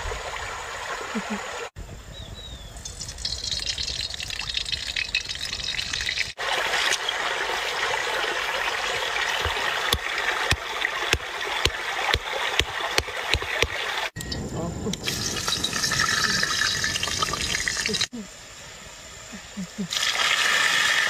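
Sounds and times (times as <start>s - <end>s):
stream water rushing: 0.0s - 1.8s, 6.2s - 14.2s
stone pounding on rock: 9.4s - 13.8s.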